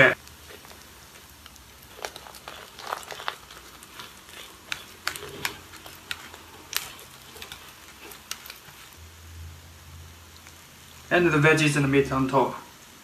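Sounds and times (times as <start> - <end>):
soft steady sizzle: 0.0 - 13.0
wooden spatula tapping and scraping: 0.4 - 9.0.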